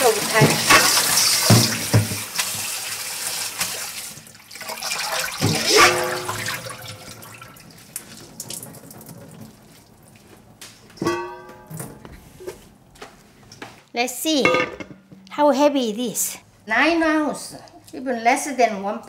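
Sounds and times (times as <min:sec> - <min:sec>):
water splash from bowl: 0:00.0 - 0:09.1
tap water running into metal bowl: 0:00.0 - 0:09.7
water dripping: 0:03.5 - 0:10.4.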